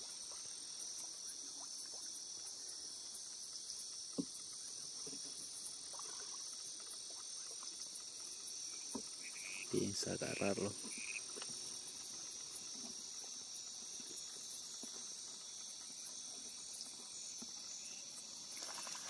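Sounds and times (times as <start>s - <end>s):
night insects chirring: 0.0s - 19.0s.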